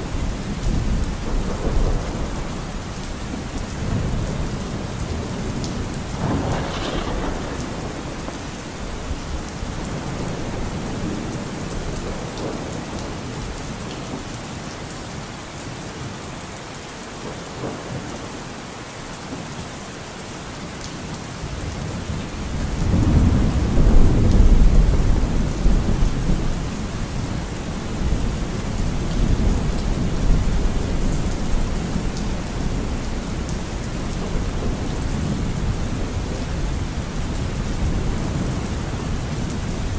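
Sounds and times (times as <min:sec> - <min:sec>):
steady rain: 0:00.0 - 0:39.9
thunder rumbling: 0:00.4 - 0:13.6, 0:21.9 - 0:39.9.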